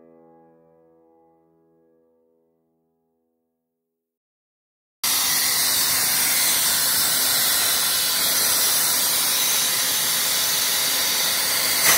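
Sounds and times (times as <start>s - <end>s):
air compressor hissing: 5.0s - 11.9s.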